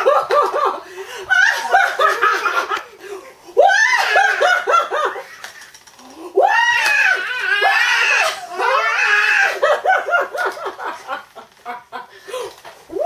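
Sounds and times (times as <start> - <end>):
woman and toddler laughing: 0.0 - 2.8.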